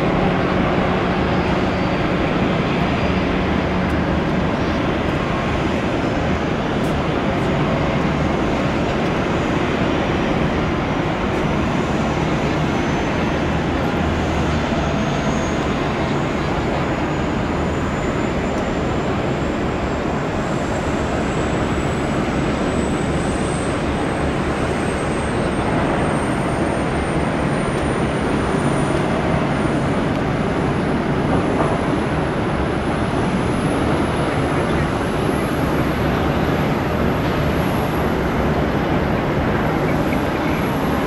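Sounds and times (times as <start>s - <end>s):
high engine whine: 0.0s - 41.0s
jet engines rumbling: 0.0s - 41.0s.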